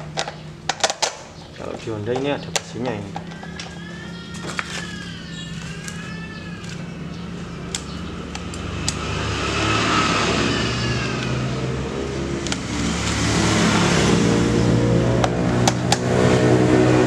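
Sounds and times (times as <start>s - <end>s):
road traffic passing: 0.0s - 17.0s
sharp clicks: 7.7s - 9.0s.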